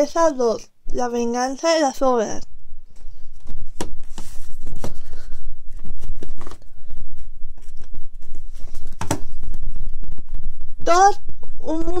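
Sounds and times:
steady low rumble: 2.4s - 12.0s.

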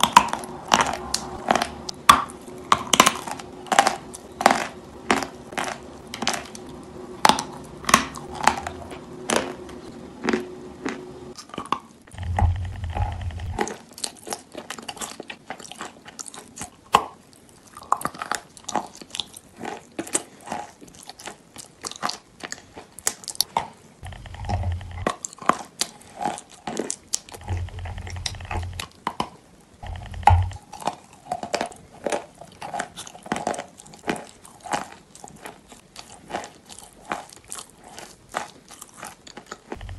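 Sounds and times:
brief low rumbles: 0.0s - 5.4s, 12.1s - 13.6s, 24.0s - 25.1s, 27.4s - 28.8s, 29.8s - 30.6s
crunchy chewing mouth sounds: 0.0s - 29.0s, 29.8s - 39.9s.

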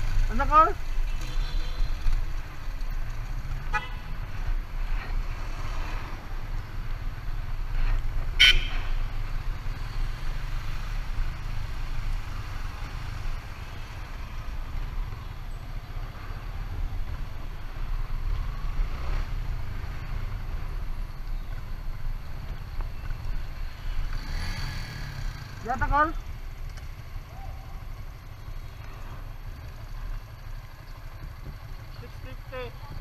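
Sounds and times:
vehicle rumbling on road: 0.0s - 33.0s.

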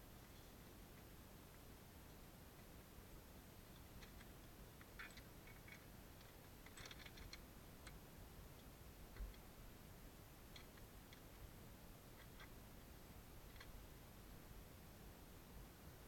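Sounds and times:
metallic chain clicks: 6.6s - 7.4s.

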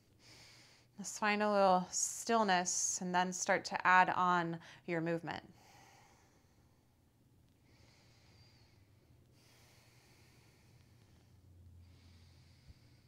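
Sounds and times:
slow breathing: 0.0s - 1.0s, 5.5s - 13.0s
low room hum: 0.0s - 13.0s.

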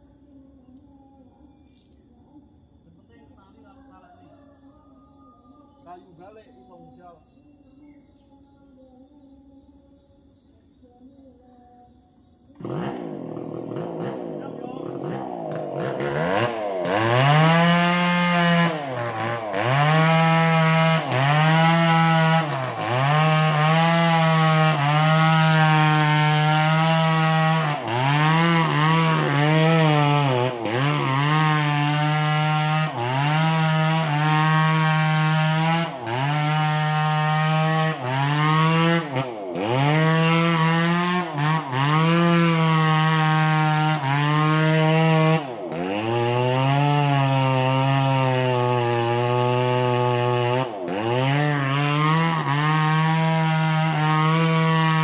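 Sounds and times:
chainsaw cutting wood: 12.5s - 55.0s.

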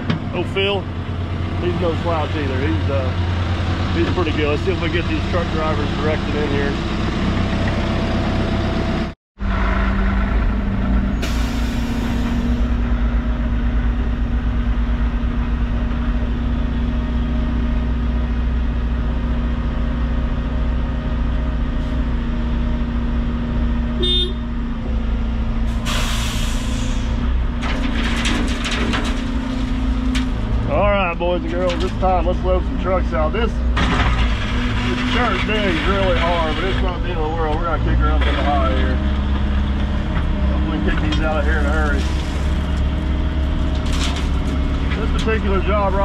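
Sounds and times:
heavy diesel engine running: 0.0s - 46.0s
air brakes hissing: 11.1s - 12.7s, 25.7s - 27.2s.

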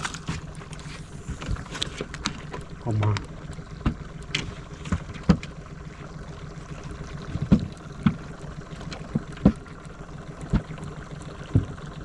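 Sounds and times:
water lapping around a boat: 0.0s - 12.0s
dull knocks against a hull: 3.8s - 5.6s, 7.1s - 12.0s.

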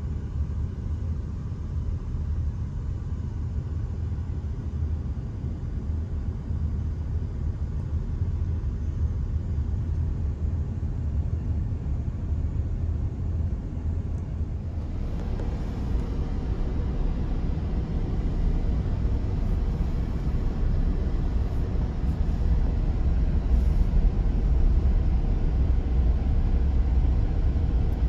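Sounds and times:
low outdoor rumble: 0.0s - 28.0s.

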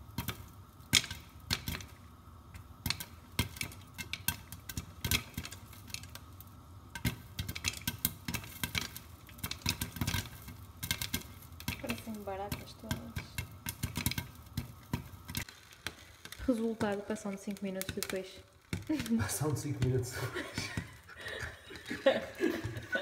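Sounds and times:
popcorn popping: 0.0s - 23.0s
kernels hitting glass lid: 6.9s - 15.5s.

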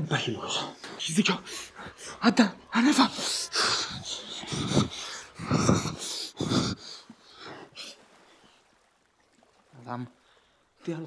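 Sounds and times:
man breathing heavily wheezing: 3.2s - 8.0s.

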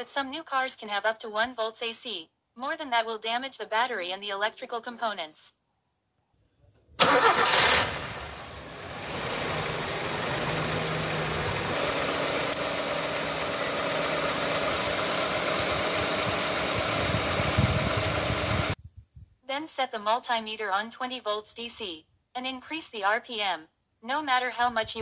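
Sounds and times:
car engine starting and idling: 7.0s - 18.8s.

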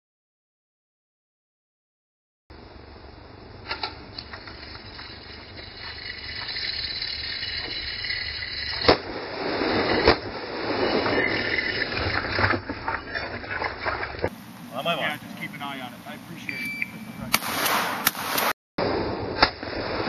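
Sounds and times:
steady hiss: 14.3s - 16.5s
handgun shots: 17.3s - 18.5s.

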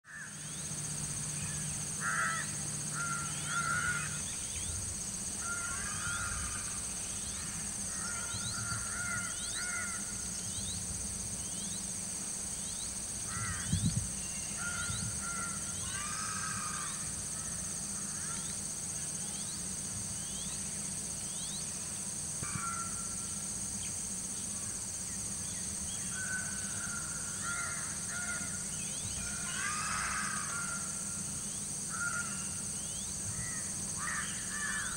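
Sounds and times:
steady high-pitched hiss: 0.0s - 34.9s
crows cawing: 0.1s - 0.4s, 2.0s - 4.3s, 5.4s - 10.2s, 13.3s - 13.7s, 14.5s - 18.5s, 22.4s - 23.2s, 26.1s - 31.2s, 31.9s - 32.6s, 33.3s - 34.9s.

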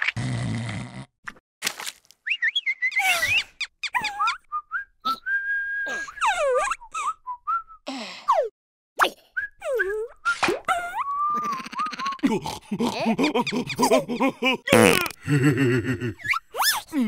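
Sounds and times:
squeaky whistle-like cartoon voices: 2.3s - 7.2s.

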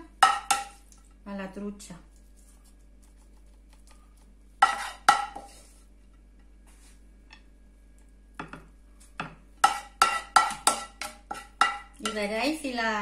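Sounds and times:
spoon clinking against dishes: 9.2s - 12.2s.

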